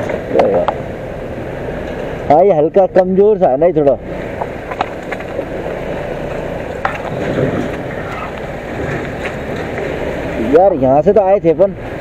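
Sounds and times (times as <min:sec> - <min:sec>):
wind and road noise: 0:00.0 - 0:12.0
scooter engine: 0:04.0 - 0:12.0
knocks and rattles: 0:06.6 - 0:09.9.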